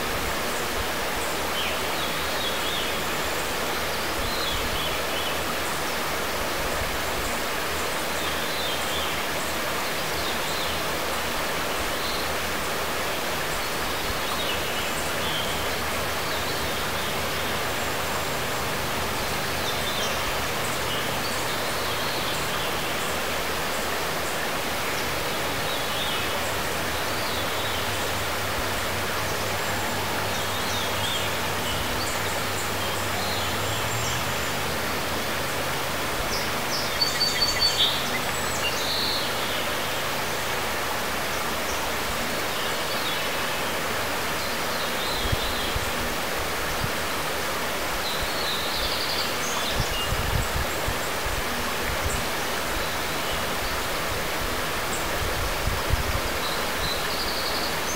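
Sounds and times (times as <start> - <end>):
running water rushing: 0.0 - 57.9.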